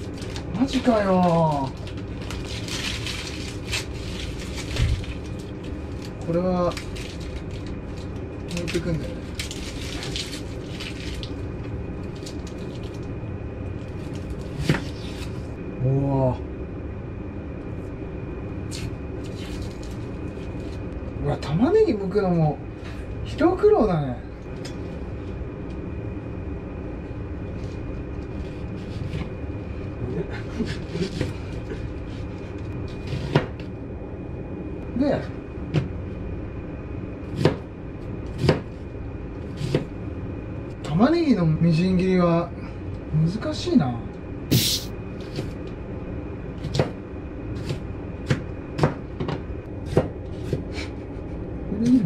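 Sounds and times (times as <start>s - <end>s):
steady low hum: 0.0s - 52.0s
knife cutting onion on board: 38.4s - 38.8s, 39.5s - 39.9s, 47.6s - 50.9s
knife chopping on cutting board: 49.9s - 50.7s.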